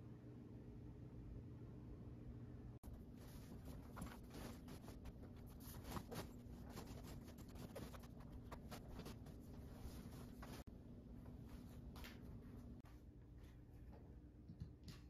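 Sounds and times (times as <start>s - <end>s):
canvas bag rustling and scraping: 3.0s - 10.7s.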